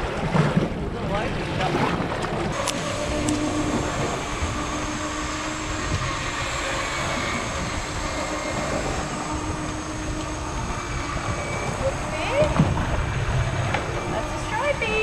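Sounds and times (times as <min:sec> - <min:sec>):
motor hum: 0:00.0 - 0:15.0
wind buffeting microphone: 0:00.0 - 0:15.0.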